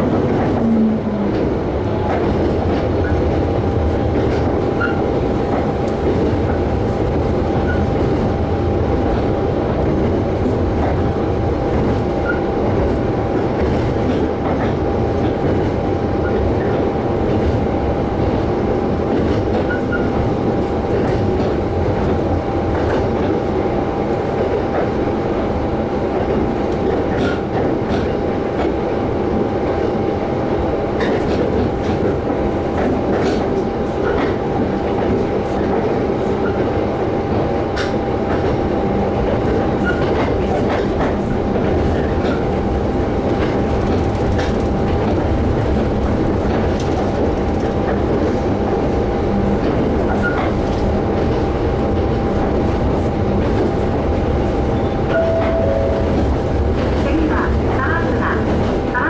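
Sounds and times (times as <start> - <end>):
train running noise with whine: 0.0 - 59.0.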